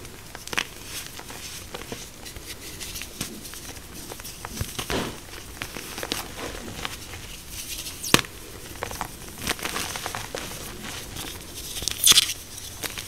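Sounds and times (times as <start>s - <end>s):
hands crumbling chalk blocks: 0.0s - 13.0s
chalk snapping: 11.6s - 13.0s.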